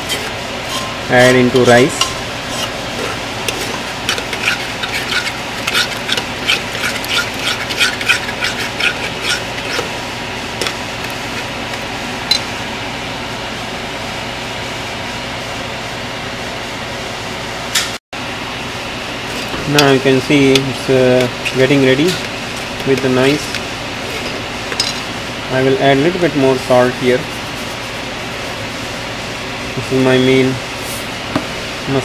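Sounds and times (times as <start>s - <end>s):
metal spoon scraping a pot: 0.0s - 10.0s.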